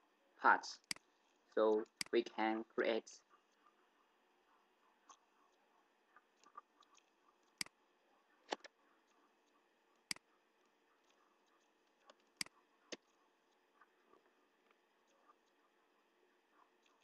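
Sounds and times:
mouse and keyboard clicks: 5.0 - 7.8, 8.4 - 15.6.

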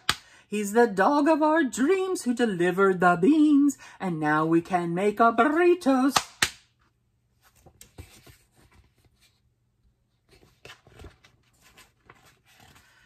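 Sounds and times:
paper pages rustling: 7.3 - 9.5, 10.2 - 13.0.

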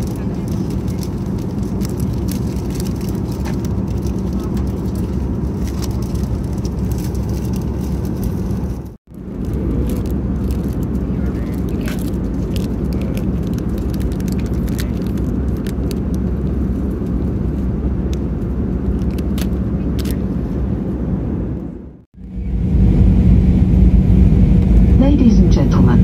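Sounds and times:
plastic snack wrapper crackling: 0.0 - 8.6, 9.4 - 16.5
airplane cabin rumble: 0.0 - 26.0.

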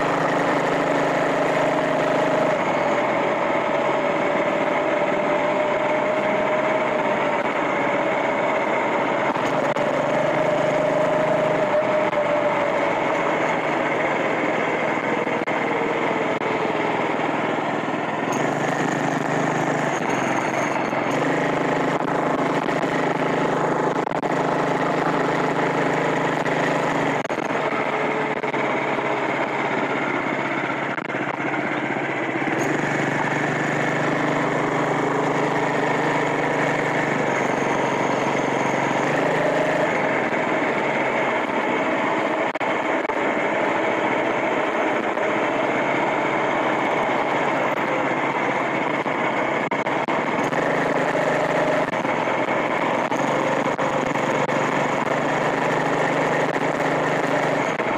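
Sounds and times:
motorized bicycle engine running: 0.0 - 57.9.

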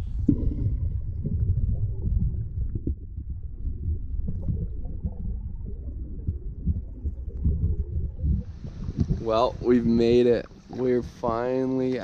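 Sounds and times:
muffled underwater river rush: 0.0 - 12.0.

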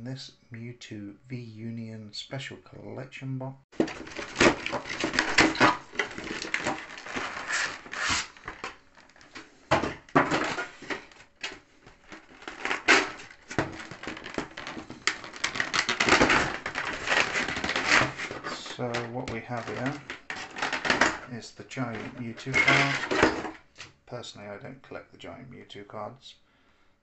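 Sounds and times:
plastic and cardboard crinkling: 3.8 - 21.2, 21.8 - 23.7.

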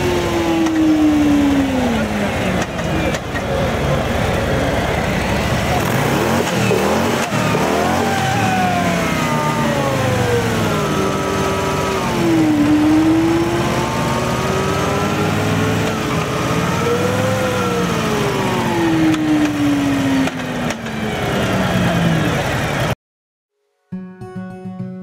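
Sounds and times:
motorcycle engine whine: 0.0 - 23.0.

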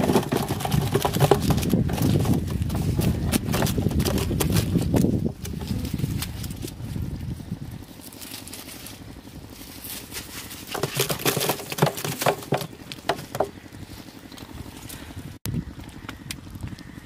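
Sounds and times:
prawns tapping metal basin: 0.0 - 5.6, 10.6 - 13.6
low steady rumble: 0.0 - 17.0.

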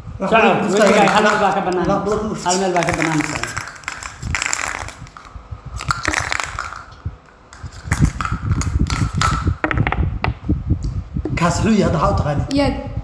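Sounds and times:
low thuds: 7.8 - 11.4.

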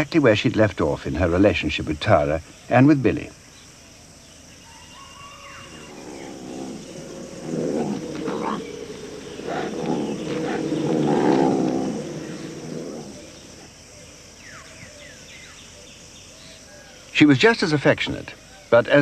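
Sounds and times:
big cat growling: 5.6 - 13.7.

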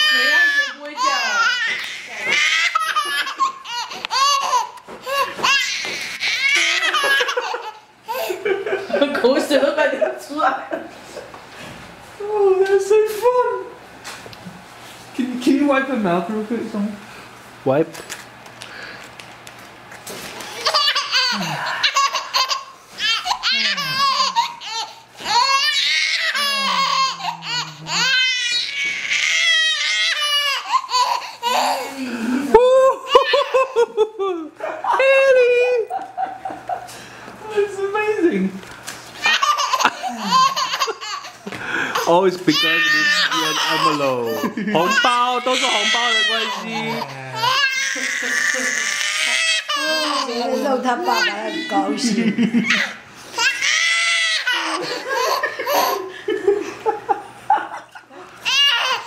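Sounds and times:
baby laughing: 0.0 - 8.5, 20.5 - 32.2, 32.9 - 35.0, 39.2 - 56.1, 57.7 - 59.0.

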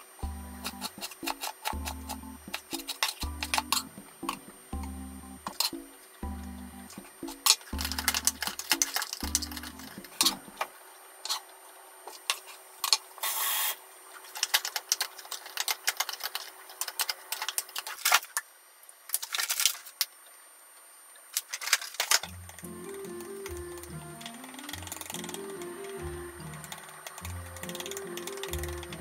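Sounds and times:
paddle tapping pot: 0.5 - 10.6.

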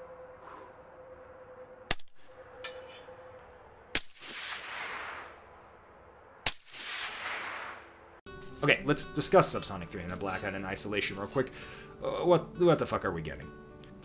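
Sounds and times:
gunshot echo off hillside: 3.9 - 5.6, 6.4 - 8.0
rifle shots: 3.9 - 5.7, 6.4 - 8.2.

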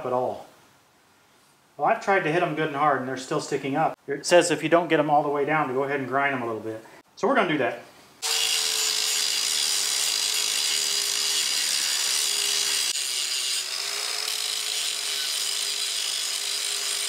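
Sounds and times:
angle grinder grinding steel: 8.2 - 17.0.

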